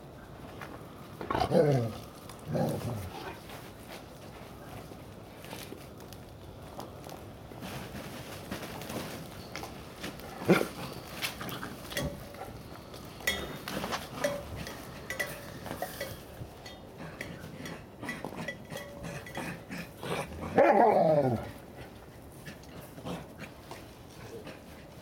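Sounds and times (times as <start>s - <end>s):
metallic clinks of tin-can toys: 11.8s - 19.6s.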